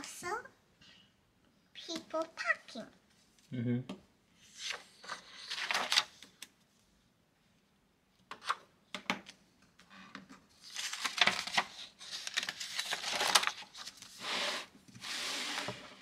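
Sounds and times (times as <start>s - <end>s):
paper rustling and rubbing: 4.4s - 6.2s, 10.5s - 16.0s.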